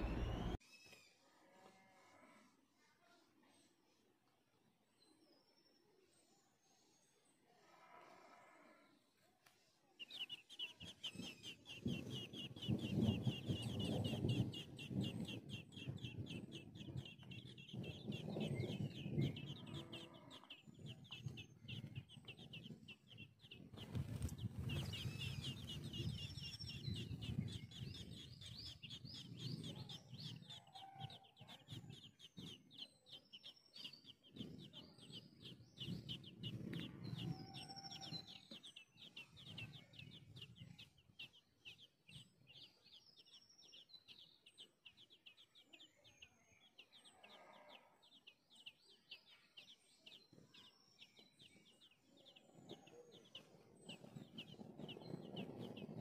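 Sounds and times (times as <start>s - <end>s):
lower louder bird calls: 0.0s - 2.5s, 10.0s - 56.0s
nestlings chirping: 10.0s - 56.0s.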